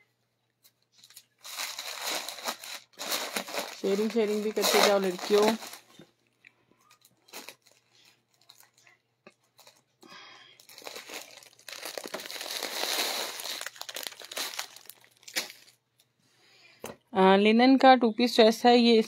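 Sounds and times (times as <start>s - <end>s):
plastic bag crinkling: 1.0s - 6.0s, 6.8s - 15.8s.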